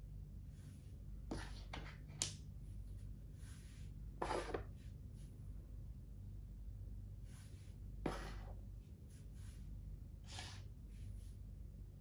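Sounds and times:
game piece scraping on board: 0:04.2 - 0:04.7, 0:10.2 - 0:10.6.

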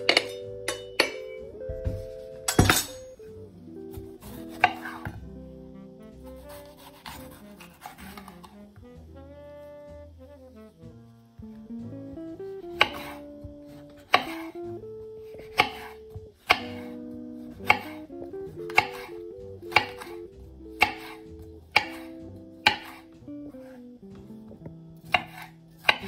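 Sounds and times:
soft background music: 0:00.0 - 0:26.0
knife chopping on wooden board: 0:03.9 - 0:05.2, 0:06.4 - 0:08.6, 0:12.7 - 0:14.5, 0:15.4 - 0:17.0, 0:17.6 - 0:18.0, 0:18.7 - 0:19.1, 0:19.7 - 0:23.1, 0:25.0 - 0:26.0.

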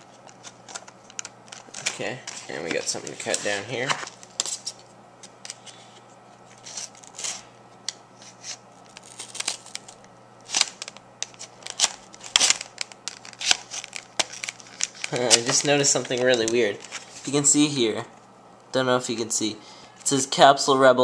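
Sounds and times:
plastic crackles: 0:00.0 - 0:05.7, 0:06.4 - 0:17.4.

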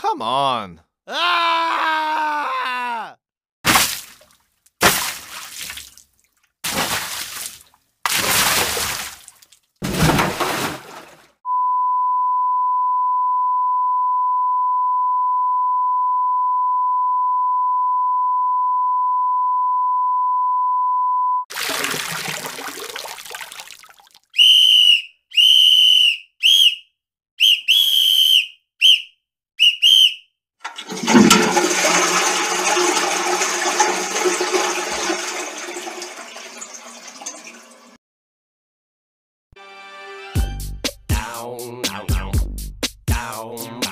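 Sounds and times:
steady high beep: 0:11.5 - 0:21.5
toilet flushing: 0:21.5 - 0:23.7, 0:30.6 - 0:38.0
high whistle toots: 0:24.4 - 0:30.3.

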